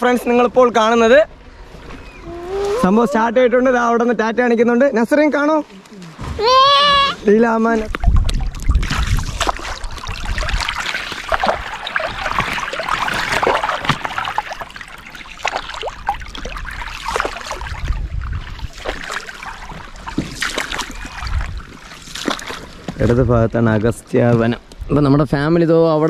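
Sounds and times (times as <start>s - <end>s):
water splashing and trickling: 5.1s - 24.6s.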